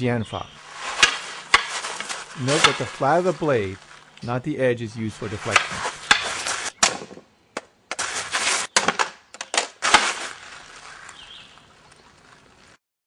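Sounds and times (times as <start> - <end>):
scuffing noise: 0.6 - 4.2, 5.2 - 6.8, 7.9 - 8.7.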